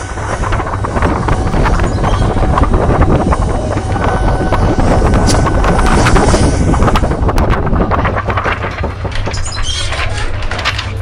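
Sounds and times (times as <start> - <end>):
wind-like rumble on microphone: 0.0 - 11.0
crackling and rustling paper: 5.2 - 11.0.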